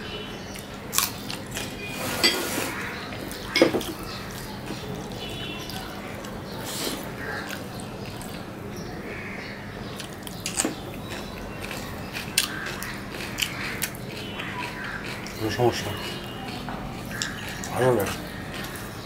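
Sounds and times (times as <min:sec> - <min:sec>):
crockery clinking: 0:01.9 - 0:02.7, 0:03.5 - 0:04.0
fingers mixing rice on plates: 0:10.0 - 0:19.0.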